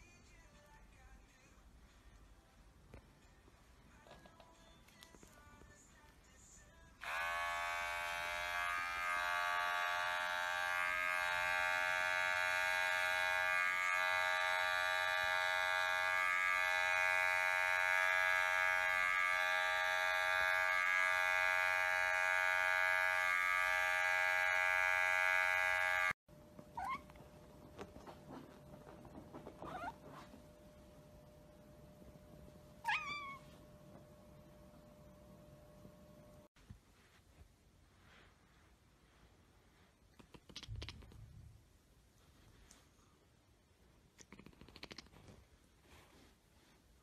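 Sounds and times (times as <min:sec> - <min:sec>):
electric hair clipper buzzing: 0:07.0 - 0:26.2
cat calls: 0:32.8 - 0:33.4.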